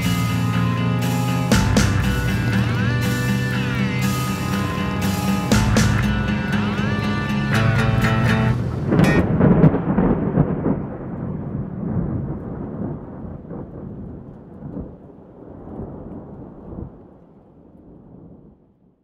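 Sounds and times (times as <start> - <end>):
rolling thunder: 8.6 - 18.8.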